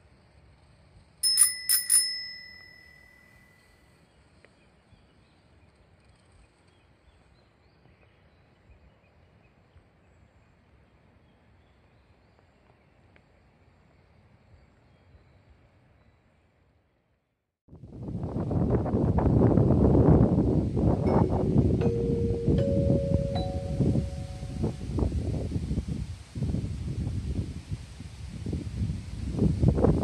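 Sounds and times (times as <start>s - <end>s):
bicycle bell ringing: 1.2s - 3.7s, 21.1s - 24.8s.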